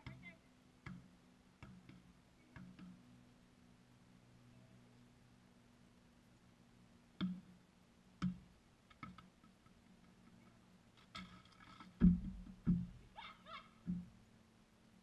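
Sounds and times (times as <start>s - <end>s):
basketball bouncing on pavement: 12.0s - 13.0s.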